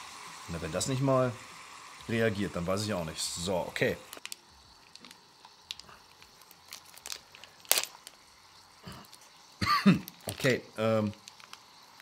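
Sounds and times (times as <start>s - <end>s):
plastic packets crinkling: 4.1s - 8.4s, 10.0s - 12.0s.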